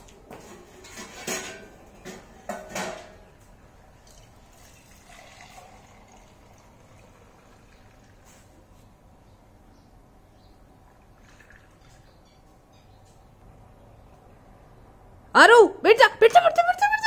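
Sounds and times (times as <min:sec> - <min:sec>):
steel pots clanking: 0:00.5 - 0:03.3
milk pouring through a strainer: 0:04.0 - 0:08.6, 0:11.2 - 0:12.1.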